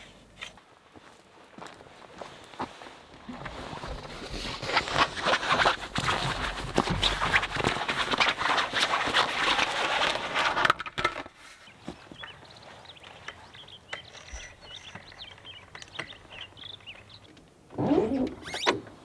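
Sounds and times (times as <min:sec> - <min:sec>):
awning rustling and clattering: 0:03.2 - 0:11.3
small birds chirping: 0:11.5 - 0:17.5.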